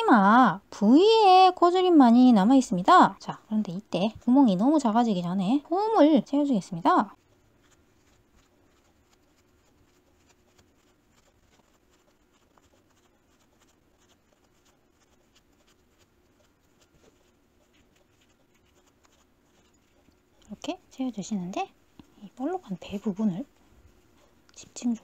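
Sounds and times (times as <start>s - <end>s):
faint steady hum: 0.0s - 25.0s
scratchy stuffing rustles: 7.1s - 21.6s.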